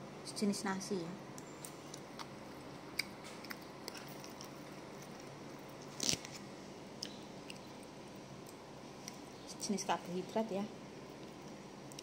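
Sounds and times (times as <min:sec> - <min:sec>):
quiet chewing: 0:01.6 - 0:06.4, 0:07.0 - 0:09.4, 0:11.1 - 0:12.0.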